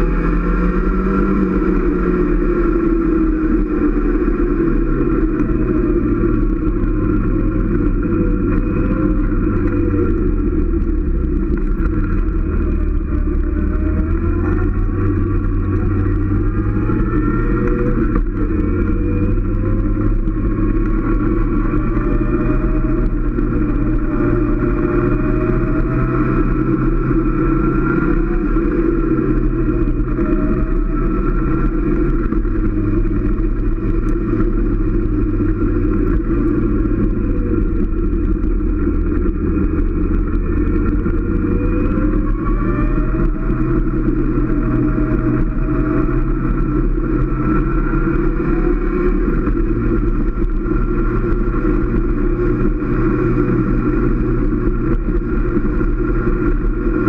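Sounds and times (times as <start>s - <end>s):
motorcycle engine running: 0.0s - 57.0s
steady rushing noise: 0.0s - 57.0s.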